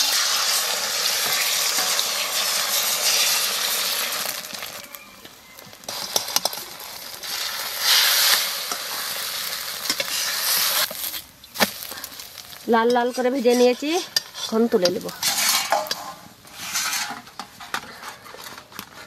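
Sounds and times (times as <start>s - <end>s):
egg sizzling in hot oil: 0.0s - 17.5s
metal spatula scraping pan: 5.8s - 11.2s, 12.4s - 19.0s.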